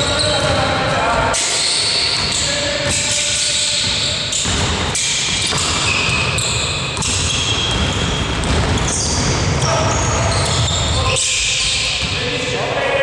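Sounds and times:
din of basketball play: 0:00.0 - 0:13.0
basketball dribbling: 0:02.1 - 0:12.2.

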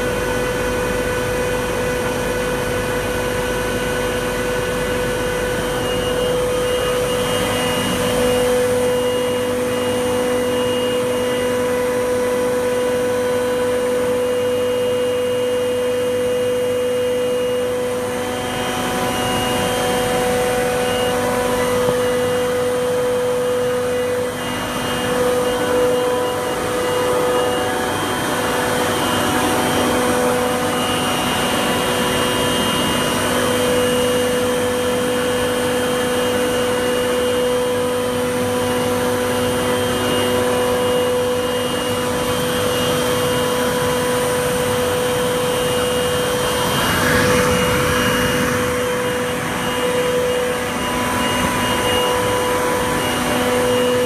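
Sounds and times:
machinery whining tones: 0:00.0 - 0:54.0
refrigeration machinery drone: 0:00.0 - 0:54.0
rushing noise: 0:45.6 - 0:54.0.

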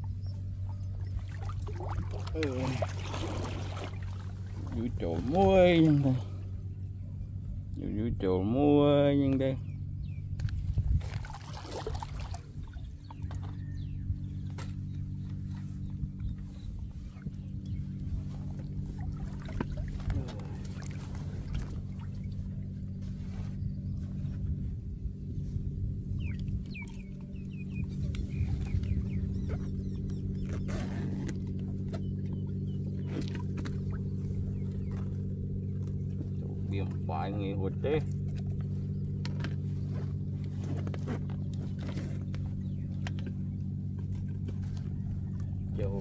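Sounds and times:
engine humming: 0:00.0 - 0:46.0
bird chirping: 0:09.5 - 0:10.4, 0:12.7 - 0:18.7, 0:26.1 - 0:31.3.

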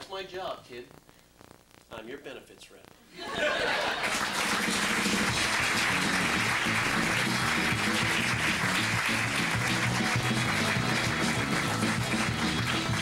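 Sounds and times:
audience applause: 0:03.7 - 0:13.0
music with moving bass line: 0:05.1 - 0:13.0.

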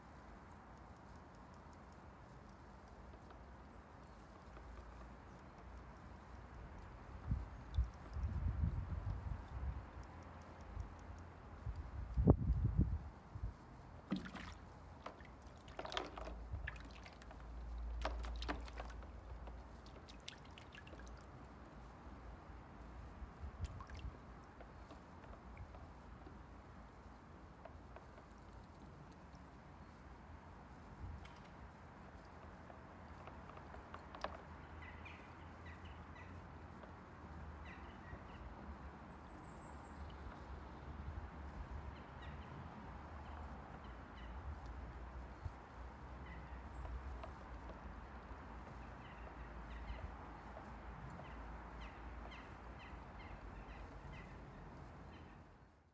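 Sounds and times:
small birds chirping: 0:00.0 - 0:55.7
water splashing and dripping: 0:13.9 - 0:26.3.

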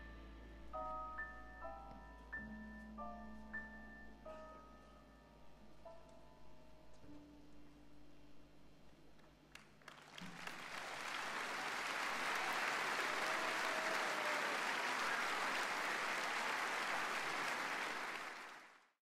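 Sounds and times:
audience applause: 0:09.6 - 0:19.0.

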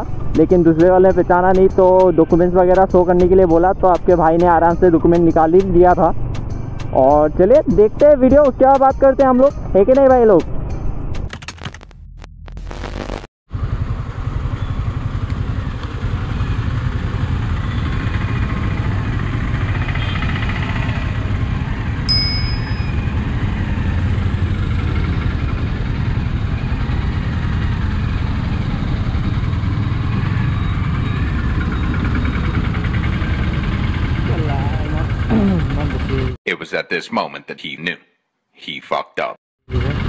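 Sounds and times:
town traffic: 0:00.0 - 0:11.3, 0:13.5 - 0:36.4, 0:39.7 - 0:40.0
high electronic ding: 0:22.1 - 0:23.2.

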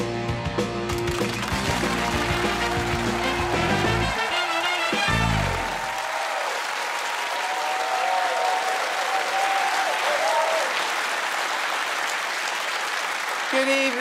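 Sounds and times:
audience applauding: 0:00.8 - 0:14.0
theme music chord: 0:01.6 - 0:05.8.

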